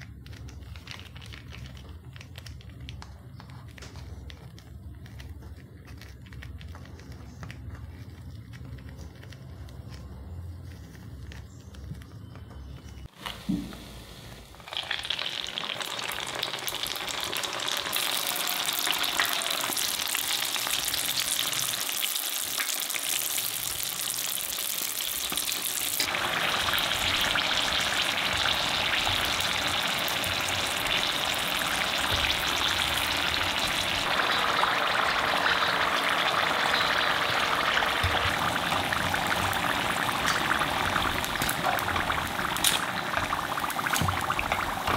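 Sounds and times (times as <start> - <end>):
rolls deep-frying in hot oil: 0.0 - 44.9.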